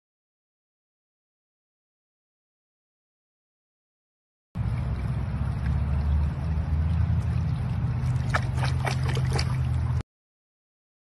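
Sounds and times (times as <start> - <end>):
water splashes: 4.6 - 10.0.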